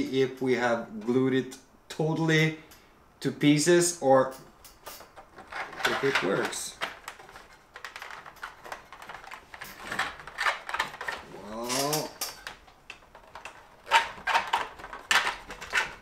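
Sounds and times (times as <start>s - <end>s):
rod clicking and scraping plastic: 11.8s - 16.0s.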